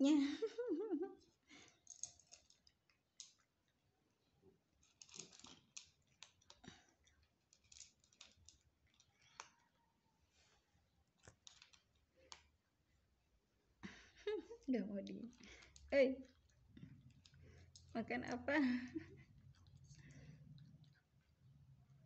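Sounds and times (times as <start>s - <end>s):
cat chewing dry kibble: 1.6s - 3.9s, 4.6s - 9.8s, 11.0s - 13.0s, 15.3s - 17.9s, 19.1s - 22.0s.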